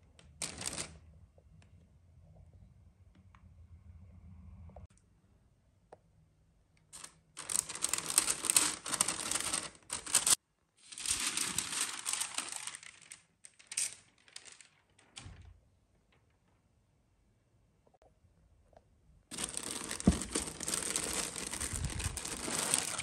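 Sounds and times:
paper wrapping crinkling: 0:00.2 - 0:01.0, 0:07.0 - 0:15.4, 0:19.3 - 0:23.0.

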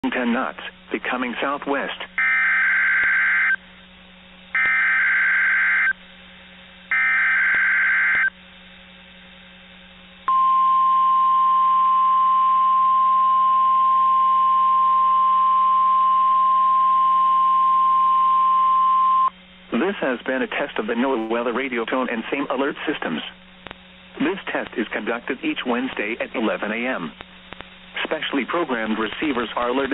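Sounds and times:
screechy digital header tones: 0:02.2 - 0:03.6, 0:04.6 - 0:06.0, 0:06.9 - 0:08.3
steady warning alarm tone: 0:02.2 - 0:03.6, 0:04.5 - 0:06.0, 0:06.9 - 0:08.3, 0:10.3 - 0:19.3.

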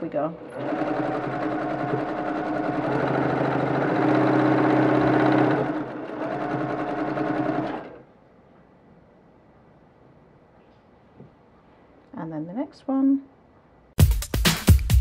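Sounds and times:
sewing machine stitching: 0:00.0 - 0:08.1.

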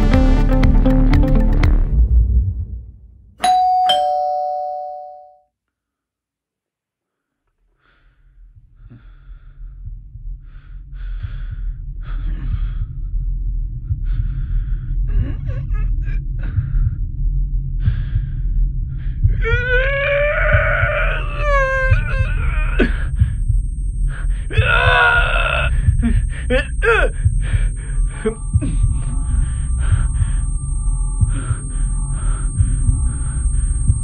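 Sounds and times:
two-tone doorbell chime: 0:03.4 - 0:05.4
low rumbling drone: 0:08.7 - 0:34.0.

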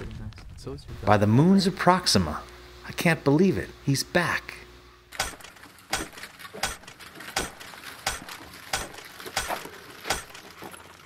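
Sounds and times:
footsteps on dirt: 0:05.2 - 0:11.0.

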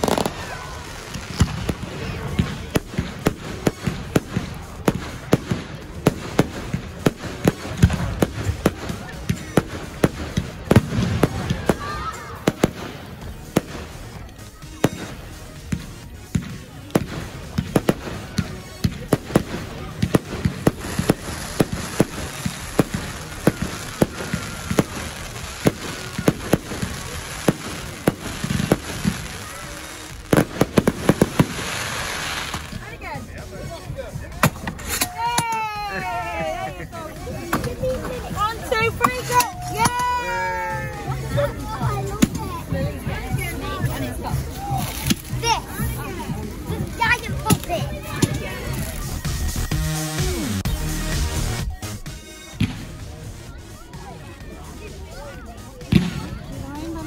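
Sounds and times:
fireworks bangs: 0:00.0 - 0:33.2.

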